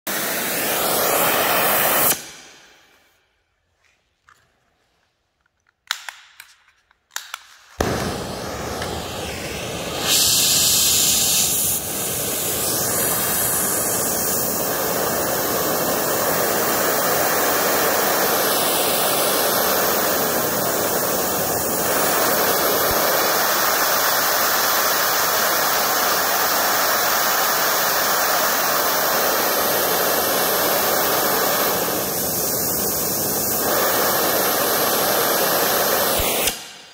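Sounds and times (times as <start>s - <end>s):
welding torch flame hissing: 0.1s - 2.9s, 7.8s - 36.9s
torch lighting clicks and pops: 5.6s - 9.5s, 36.1s - 36.8s.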